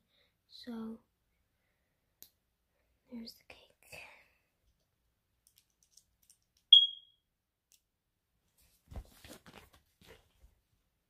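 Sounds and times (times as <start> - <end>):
smoke detector chirp: 6.7 - 7.2.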